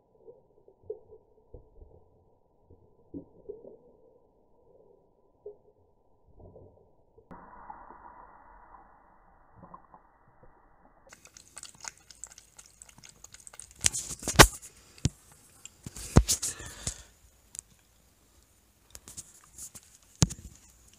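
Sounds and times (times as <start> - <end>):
cat lapping water from metal bowl: 11.1 - 17.0.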